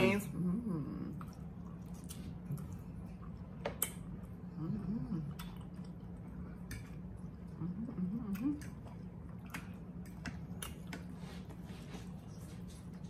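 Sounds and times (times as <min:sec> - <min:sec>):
steady low hum: 0:00.0 - 0:13.0
person humming mm: 0:04.5 - 0:05.5, 0:07.6 - 0:08.7.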